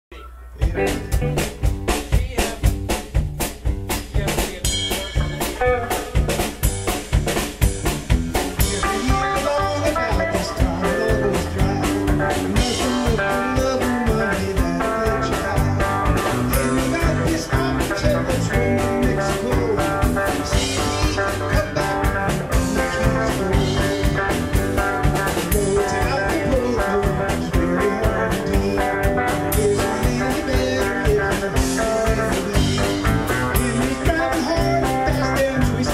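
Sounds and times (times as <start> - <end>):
drum kit steady beat: 0.1 - 35.9
electric guitars: 0.1 - 35.9
live band jamming: 0.1 - 35.9.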